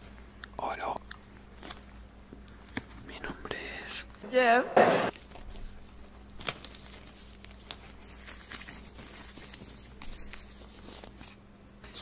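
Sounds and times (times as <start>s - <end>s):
soft clicks and snaps: 0.1s - 1.8s.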